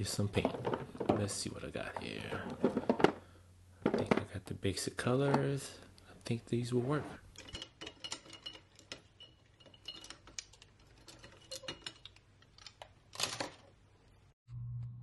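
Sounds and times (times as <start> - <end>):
paintbrushes rattling against glass jar: 7.4 - 12.2.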